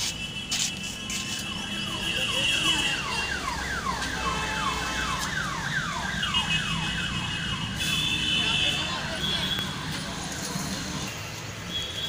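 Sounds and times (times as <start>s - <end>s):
electronic alarm siren: 1.5s - 7.8s.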